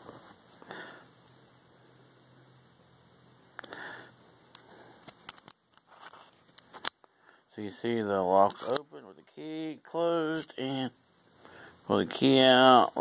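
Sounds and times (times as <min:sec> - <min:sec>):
padlock handling noise: 0:05.0 - 0:07.1, 0:08.5 - 0:08.8.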